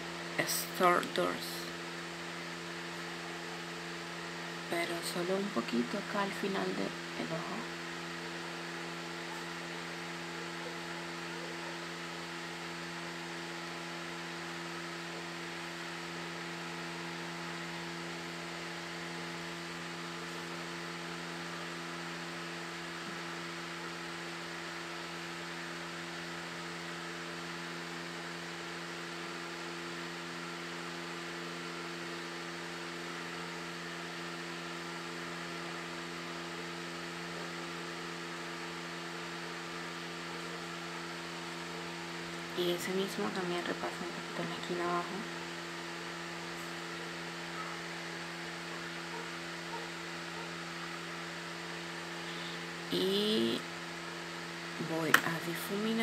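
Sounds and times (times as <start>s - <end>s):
steady machine hum: 0.0s - 56.0s.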